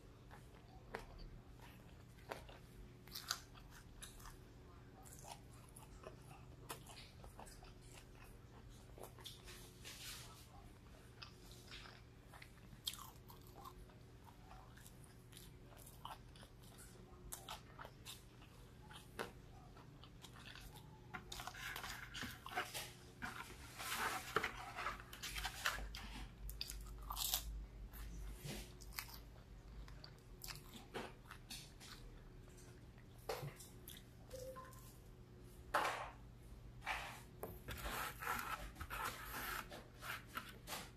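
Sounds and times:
faint steady hum: 0.0 - 40.9
crunchy chewing: 0.2 - 9.8, 10.7 - 32.8.

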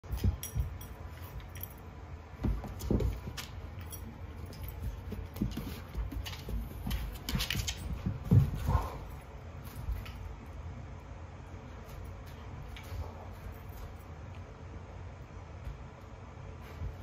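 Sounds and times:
clicks and light jingling: 0.0 - 2.0, 2.7 - 10.3
dogs scuffling and thumping: 0.0 - 10.5, 11.7 - 14.4, 15.5 - 17.0.

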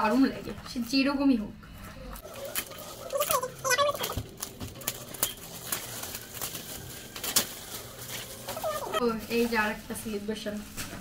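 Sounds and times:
packaging crinkling and rustling: 2.2 - 11.0.

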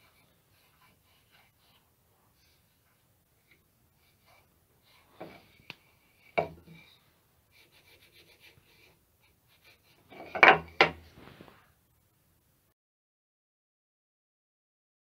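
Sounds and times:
wooden plane knocking on workbench: 10.2 - 11.0.

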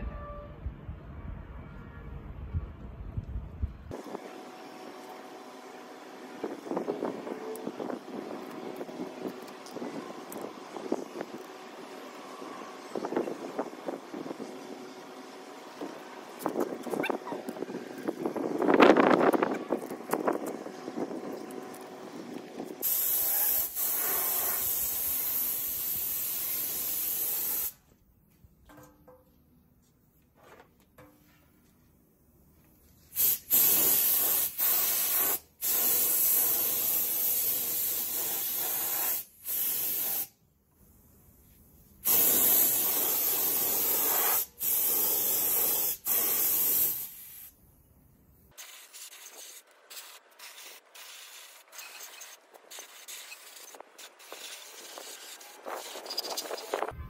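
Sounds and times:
spray gun air hiss: 22.8 - 27.8, 33.1 - 40.4, 42.0 - 47.6, 48.6 - 56.0.

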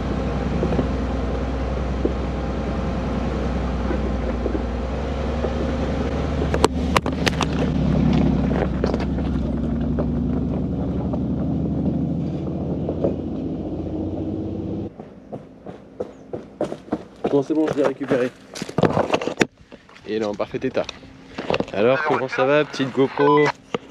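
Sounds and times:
car engine running: 0.0 - 17.2.

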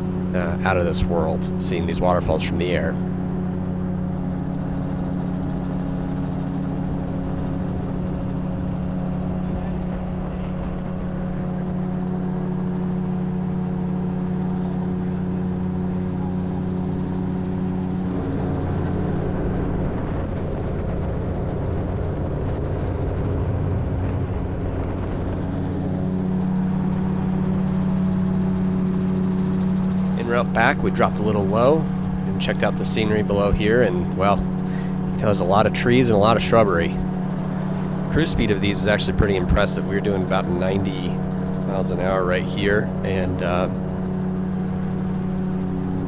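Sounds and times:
aircraft engine and propeller droning: 0.0 - 46.0
wind rush on microphone: 18.1 - 25.8.

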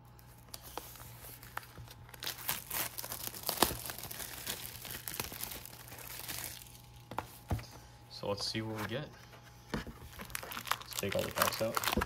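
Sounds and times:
plastic shrink-wrap tearing: 0.5 - 7.0, 10.1 - 12.0.

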